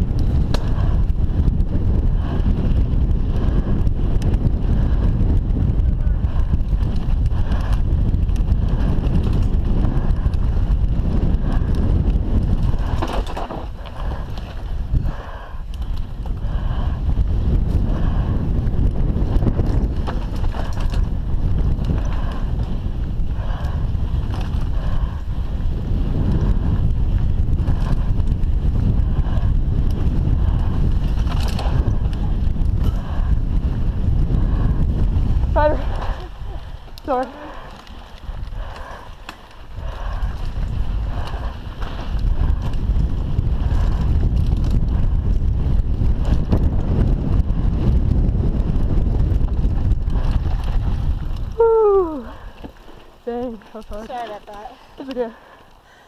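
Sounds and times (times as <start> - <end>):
bike tyres crunching on dirt: 0.0 - 56.0
wind buffeting microphone: 0.0 - 56.0
bike knocks and rattles: 6.7 - 14.8, 17.6 - 23.1
bike clattering over stones: 12.3 - 14.6, 19.5 - 22.3.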